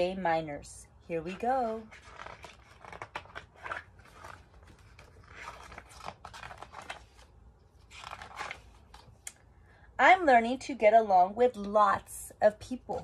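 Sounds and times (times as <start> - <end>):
book pages turning: 1.3 - 9.4.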